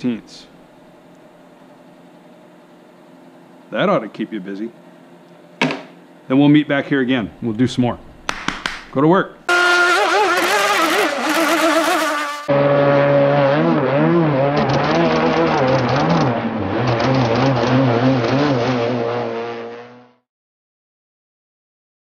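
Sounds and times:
rc boat motor buzzing: 9.5s - 20.1s.

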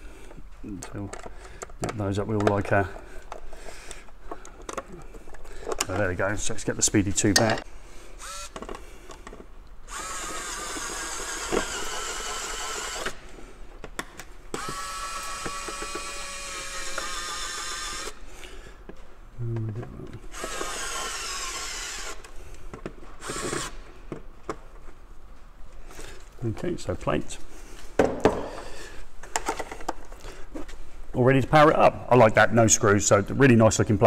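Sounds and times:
electric screwdriver motor whining: 8.2s - 8.7s, 9.9s - 13.2s, 14.6s - 18.2s, 20.3s - 22.3s, 23.2s - 23.8s.

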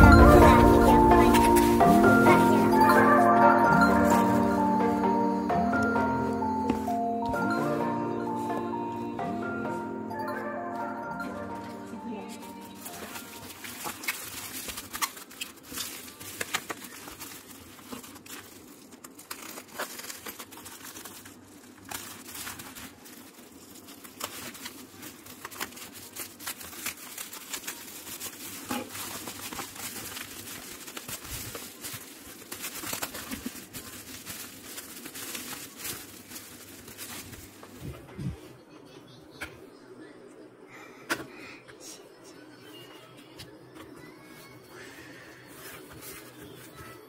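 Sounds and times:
bubble wrap crinkling and crackling: 0.0s - 4.8s, 11.7s - 38.1s, 45.4s - 47.0s.

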